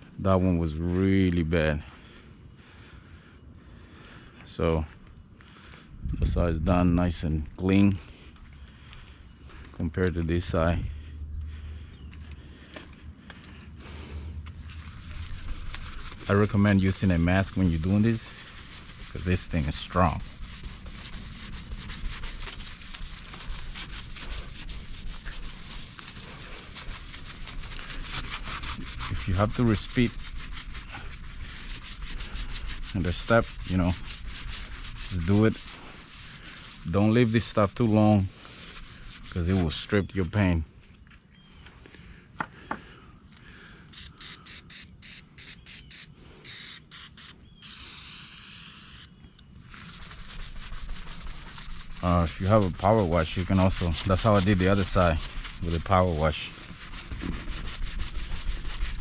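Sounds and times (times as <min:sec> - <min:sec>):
sponge scrubbing painted panel: 0:13.9 - 0:40.3, 0:44.0 - 0:49.1, 0:49.7 - 0:59.0
aerosol can spraying: 0:44.0 - 0:49.1.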